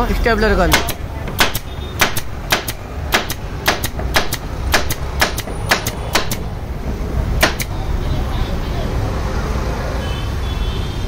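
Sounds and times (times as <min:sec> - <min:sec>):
pneumatic stapler snapping: 0:00.7 - 0:06.6, 0:07.4 - 0:07.8.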